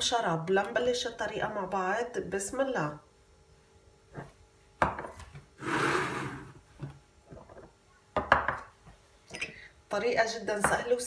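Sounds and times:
glass scraping on table: 5.6 - 6.6.

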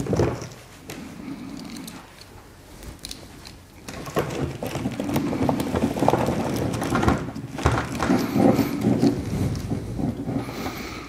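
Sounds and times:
plastic parts knocking and clicking: 0.0 - 1.0, 3.8 - 10.5.

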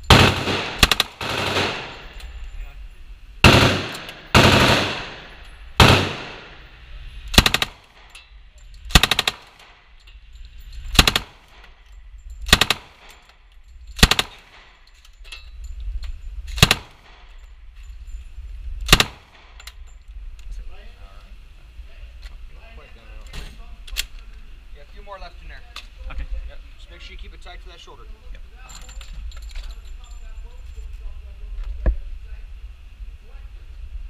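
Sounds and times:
submachine gun firing bursts: 0.0 - 2.1, 3.4 - 6.6, 7.3 - 8.0, 8.9 - 9.8, 10.9 - 11.6, 12.5 - 13.1, 14.0 - 14.7, 16.6 - 17.1, 18.8 - 19.4.

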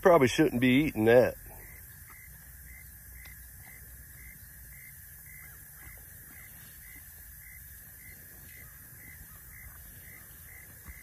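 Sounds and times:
cow chewing grass: 2.1 - 11.0.

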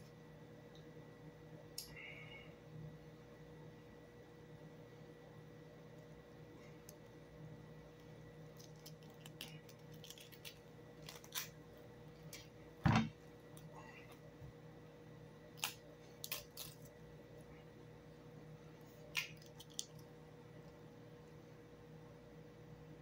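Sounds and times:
cabbage leaves crackling and snapping: 8.5 - 11.6, 15.6 - 16.9, 19.0 - 20.0.

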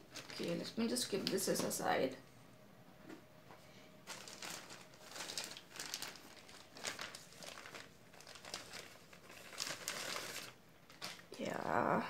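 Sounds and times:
plastic bag crinkling: 0.0 - 1.9, 4.0 - 11.6.

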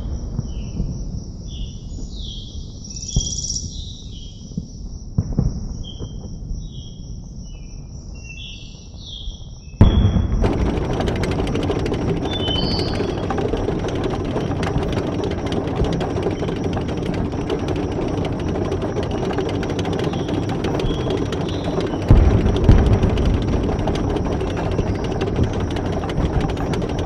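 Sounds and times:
low outdoor rumble: 9.9 - 27.0
tank engine and clanking tracks: 10.4 - 27.0.

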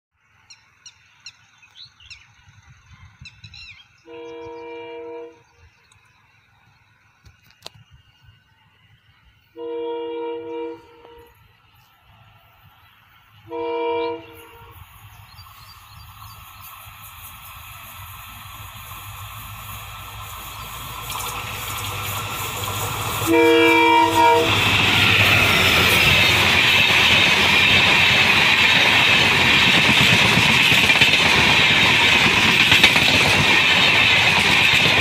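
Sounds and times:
birds chirping: 0.3 - 9.6, 10.4 - 17.1
train horn blasts: 4.0 - 5.4, 9.5 - 11.5, 13.4 - 14.9, 23.2 - 25.4.

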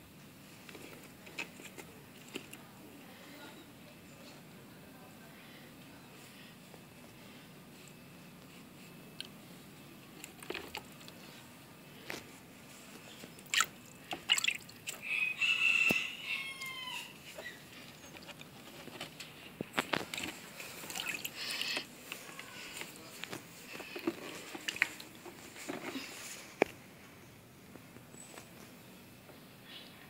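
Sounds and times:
small water splashes: 13.4 - 15.0, 20.8 - 21.6.

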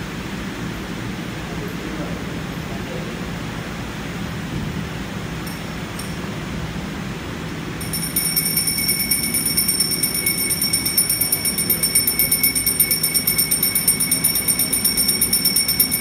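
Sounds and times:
hand bell ringing rapidly: 5.5 - 6.3, 7.8 - 16.0.

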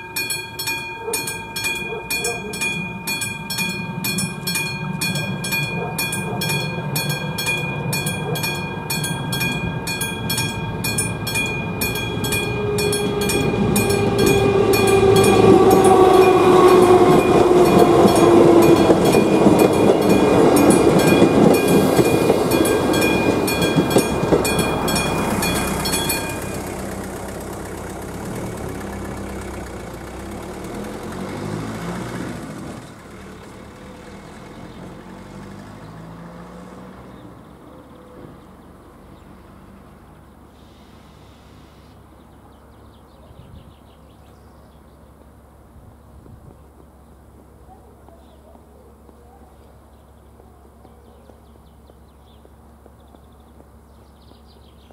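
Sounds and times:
level crossing bell ringing: 0.0 - 28.3
passenger train passing: 0.0 - 39.8.

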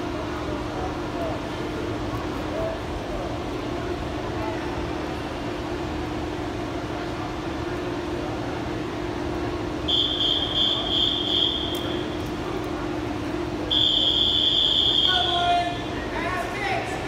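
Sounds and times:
steady low hum: 0.0 - 17.0
long high whistle blast: 9.9 - 12.1, 13.7 - 15.5.

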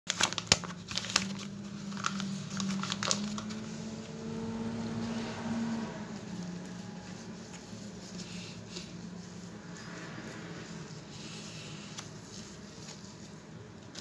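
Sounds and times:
foil pouch crinkling: 0.1 - 3.8.

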